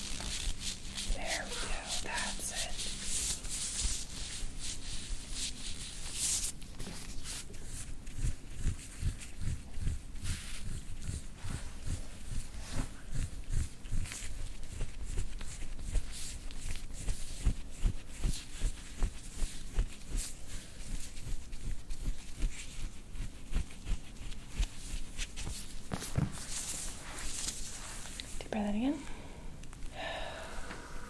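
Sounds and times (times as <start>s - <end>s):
rustling of clothing and padding: 0.0s - 29.0s.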